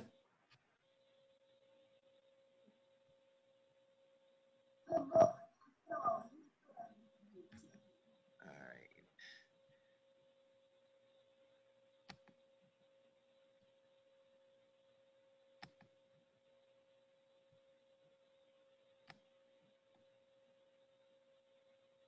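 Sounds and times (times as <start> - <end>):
faint hum-like tone: 0.0 - 22.0
faint clicks: 12.0 - 12.4, 15.6 - 15.9, 19.0 - 19.3.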